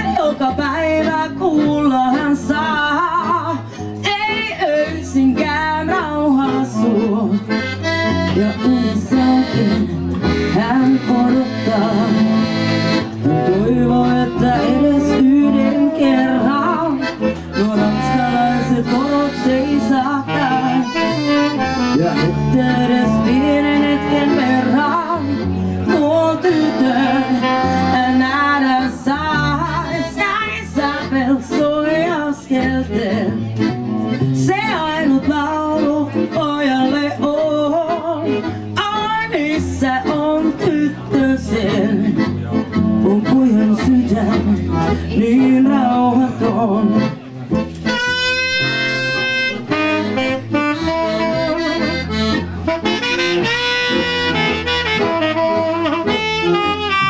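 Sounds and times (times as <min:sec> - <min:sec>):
woman singing: 0:00.0 - 0:07.6, 0:08.2 - 0:12.6, 0:13.2 - 0:21.1, 0:22.0 - 0:33.5, 0:34.4 - 0:42.3, 0:43.0 - 0:47.2
double bass: 0:00.0 - 0:57.0
tenor saxophone: 0:06.1 - 0:31.2, 0:46.9 - 0:57.0.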